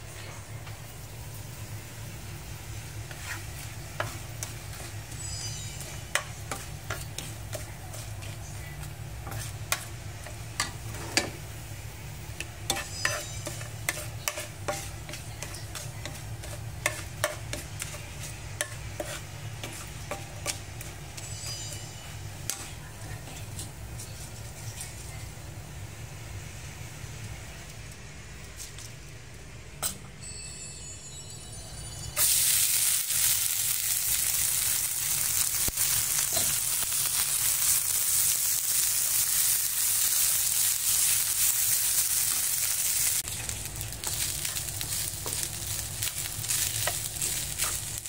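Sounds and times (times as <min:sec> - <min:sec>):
spices sizzling in hot oil: 0:00.8 - 0:28.2, 0:32.1 - 0:48.0.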